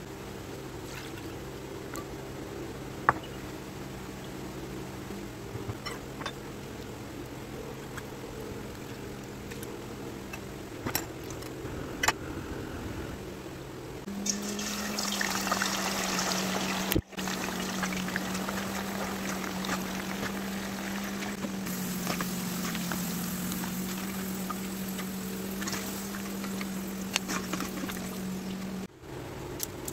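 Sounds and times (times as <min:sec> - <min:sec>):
steady hum: 0:00.0 - 0:29.9
potato slices deep-frying in oil: 0:14.1 - 0:28.9.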